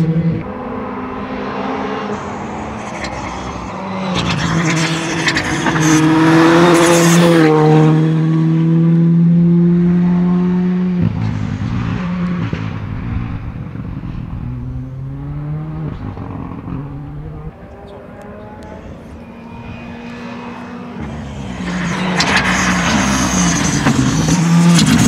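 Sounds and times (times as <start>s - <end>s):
rally car engine passing: 0.0s - 25.0s
engine crackles: 2.1s - 7.5s, 11.1s - 25.0s.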